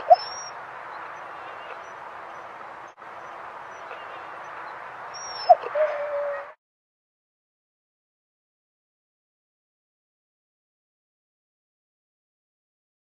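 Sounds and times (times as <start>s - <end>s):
dog whining: 0.0s - 0.5s, 5.2s - 6.6s
dog yelp: 0.0s - 0.5s, 5.2s - 6.5s.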